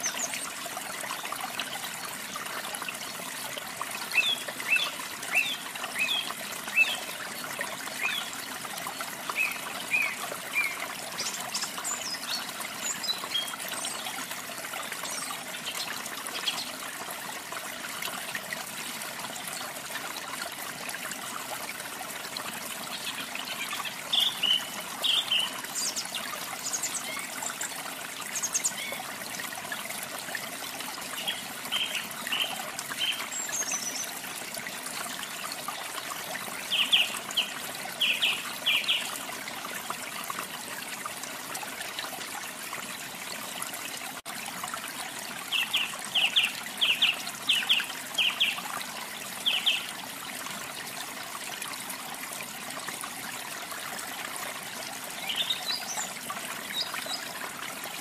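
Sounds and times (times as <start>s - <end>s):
running water rushing: 0.0s - 58.0s.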